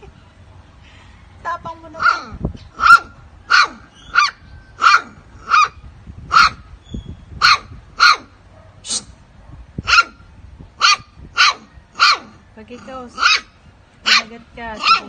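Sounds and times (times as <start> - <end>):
puppy barking: 2.0 - 6.6, 7.4 - 8.8, 9.4 - 10.2, 10.8 - 12.4, 13.2 - 15.0.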